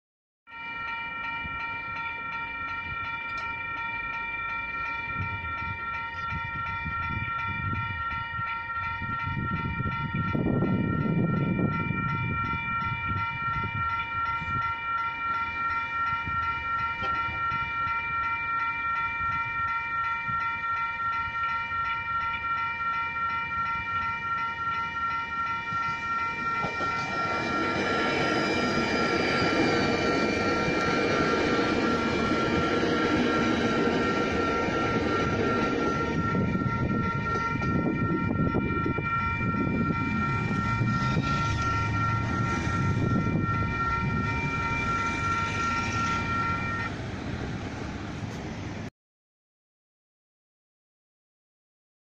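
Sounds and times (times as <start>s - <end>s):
level crossing warning bells: 0.5s - 48.8s
electric train passing: 0.5s - 48.9s
road vehicle passing: 39.9s - 48.9s.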